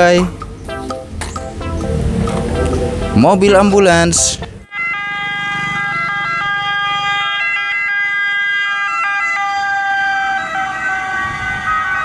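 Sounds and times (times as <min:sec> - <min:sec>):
ambulance siren: 0:04.6 - 0:12.0.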